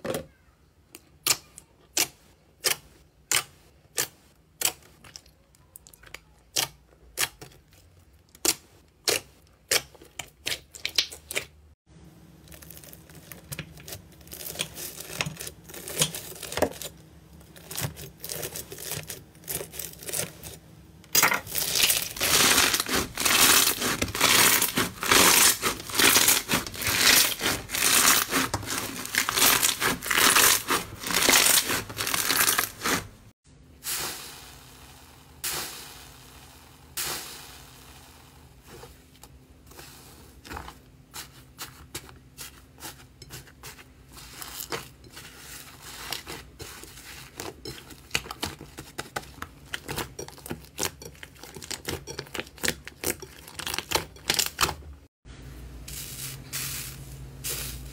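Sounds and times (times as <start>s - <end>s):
hands squeezing crackling slime: 12.4s - 16.6s, 21.5s - 33.1s
blade slicing crunchy slime: 17.6s - 33.2s.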